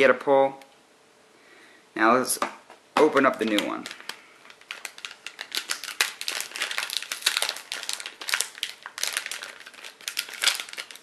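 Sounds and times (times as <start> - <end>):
plastic packaging crinkling: 3.0 - 11.0.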